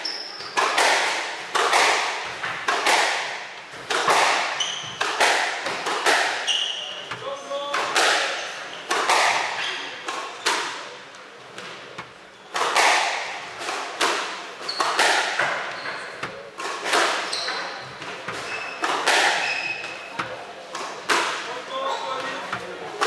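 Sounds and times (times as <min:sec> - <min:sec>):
shoes squeaking on wooden floor: 0:00.0 - 0:00.8, 0:04.4 - 0:05.8, 0:06.4 - 0:07.4, 0:14.6 - 0:16.4, 0:17.1 - 0:20.4, 0:21.7 - 0:22.9
squash ball hitting rackets and walls: 0:00.0 - 0:23.0.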